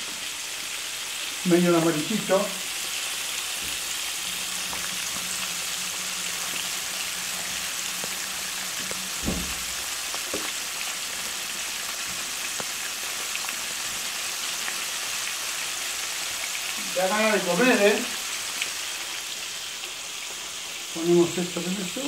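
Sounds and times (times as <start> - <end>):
fish deep-frying in hot oil: 0.0 - 22.0.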